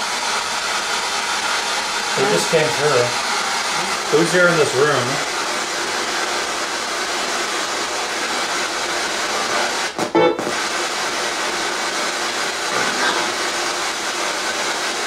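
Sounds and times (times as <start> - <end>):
pitched radio audio: 2.1 - 5.3, 10.0 - 10.7, 12.6 - 13.6
radio static: 2.2 - 5.3, 9.9 - 10.9, 12.6 - 13.6.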